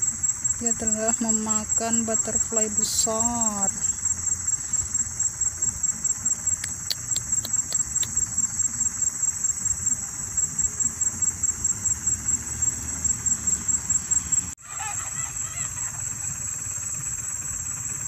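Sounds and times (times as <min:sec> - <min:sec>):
insect chirping trill: 0:00.0 - 0:18.0
faint ticks: 0:06.5 - 0:08.5.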